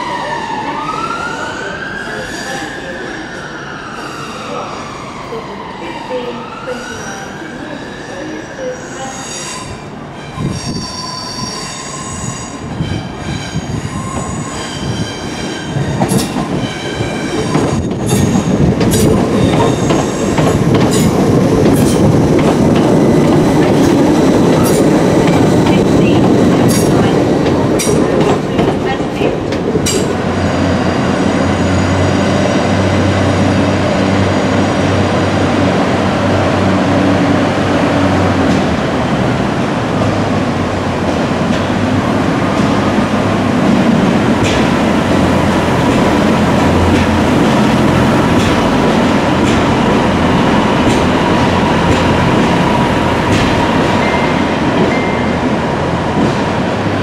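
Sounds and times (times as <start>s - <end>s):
train rumbling past: 0.0s - 57.0s
train wheels squealing: 6.7s - 18.5s
wheels clacking over rail joints: 15.7s - 30.2s, 43.8s - 55.4s.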